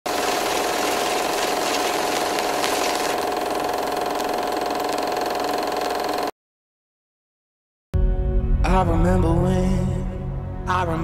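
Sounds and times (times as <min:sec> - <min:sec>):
film projector rattling: 0:00.1 - 0:06.3.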